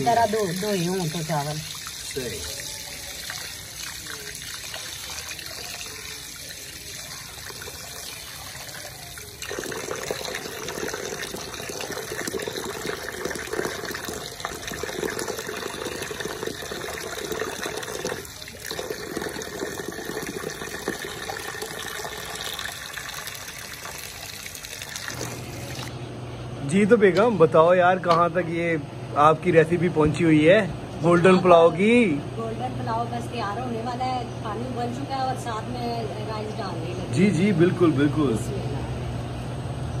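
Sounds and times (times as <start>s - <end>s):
water pouring into basin: 0.0s - 25.9s.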